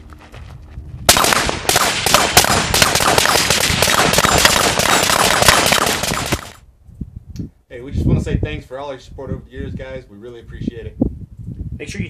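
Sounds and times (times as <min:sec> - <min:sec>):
rifles firing rapidly: 0:01.1 - 0:06.6.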